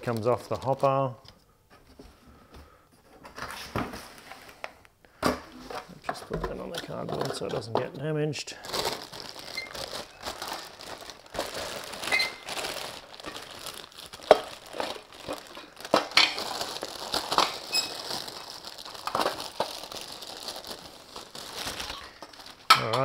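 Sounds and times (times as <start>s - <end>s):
packaging crinkling and rustling: 0.0s - 1.3s, 5.6s - 8.0s, 8.6s - 23.0s.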